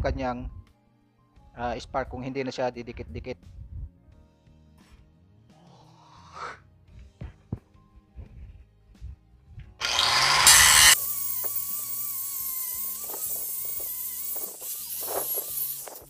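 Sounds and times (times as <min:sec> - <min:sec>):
angle grinder grinding metal: 0:09.8 - 0:16.0.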